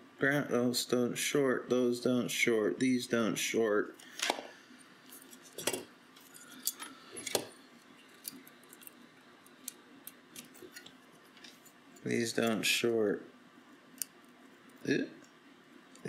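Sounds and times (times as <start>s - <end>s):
circuit board being handled: 5.1s - 11.8s.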